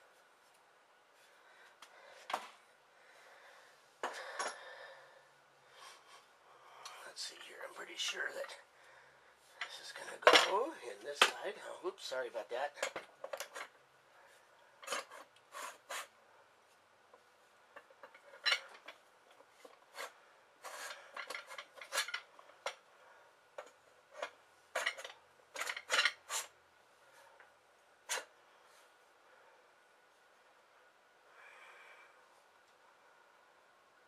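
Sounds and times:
metal parts clicking and clinking: 17.8s - 19.8s, 21.1s - 22.8s, 23.6s - 26.3s.

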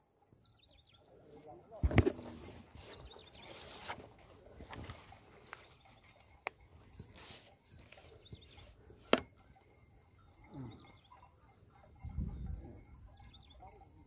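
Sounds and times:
grass rustling: 1.3s - 9.4s
handling noises: 1.8s - 9.4s.

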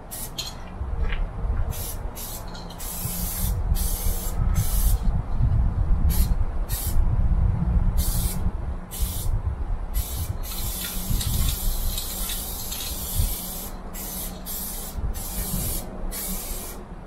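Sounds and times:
spray paint can hissing: 0.1s - 0.5s, 1.7s - 5.1s, 6.1s - 7.0s, 8.0s - 9.3s, 10.0s - 16.8s
low rumble: 3.3s - 13.8s.

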